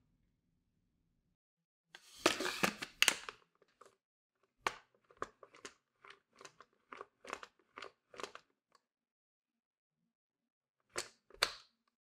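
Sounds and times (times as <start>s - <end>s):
plastic scrape: 2.0s - 4.0s.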